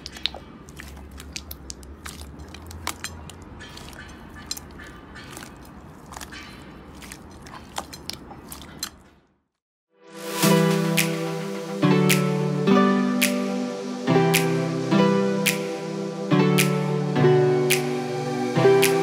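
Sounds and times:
slime crackling and popping: 0.0 - 4.7.

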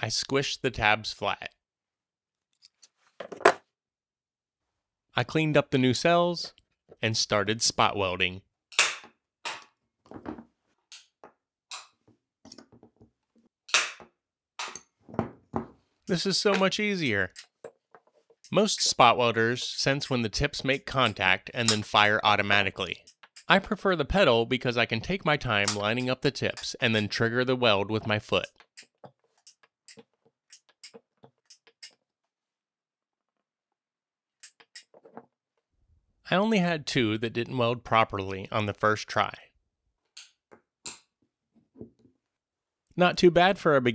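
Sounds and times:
spot welder snapping cracks: 13.7 - 14.0.

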